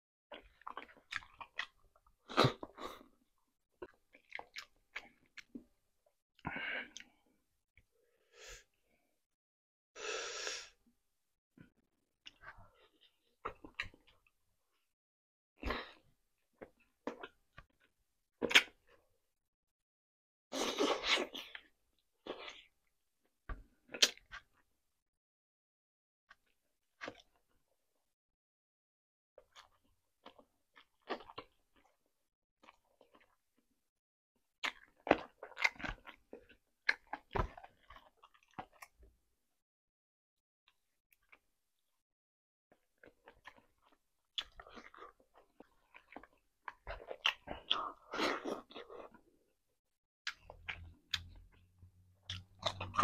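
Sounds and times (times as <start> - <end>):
chewing with mouth smacks: 3.8 - 5.6, 43.0 - 49.2, 50.3 - 51.6, 52.2 - 53.0.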